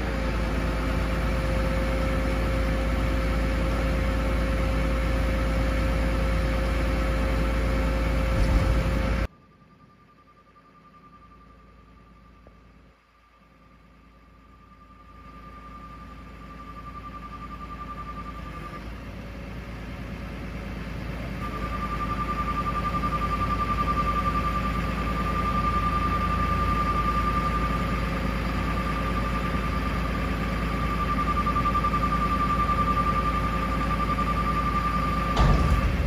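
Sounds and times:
hydraulic whine: 0.0s - 12.9s, 13.7s - 36.0s
diesel truck engine running: 0.0s - 36.0s
dump body knocking onto frame: 35.4s - 36.0s.

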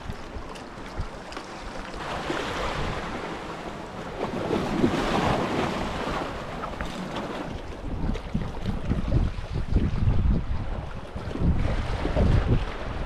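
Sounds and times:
surf washing against rocks: 0.0s - 13.0s
wind buffeting microphone: 0.0s - 13.0s.

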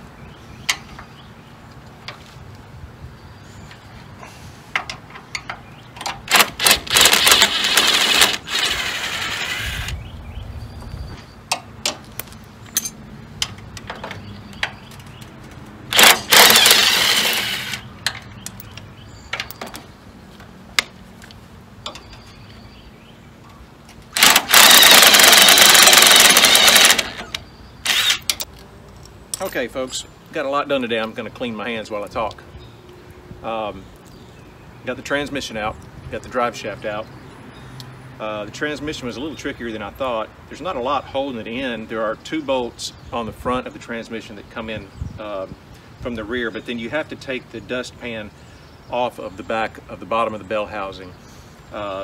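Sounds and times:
metallic clinks of tools: 12.7s - 13.0s.

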